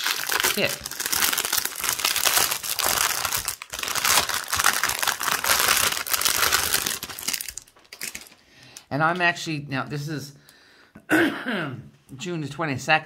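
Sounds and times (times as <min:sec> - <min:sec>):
plastic packaging crinkling: 0:00.0 - 0:08.9.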